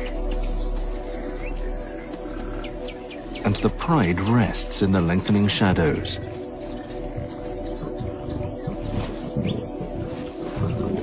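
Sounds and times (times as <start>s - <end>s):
soft background music: 0.0s - 11.0s
lion growling: 7.2s - 11.0s.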